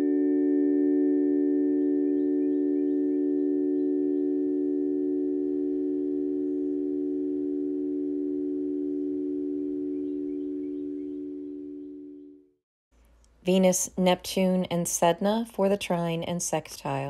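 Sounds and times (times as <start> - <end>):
chord of pure tones: 0.0 - 12.6.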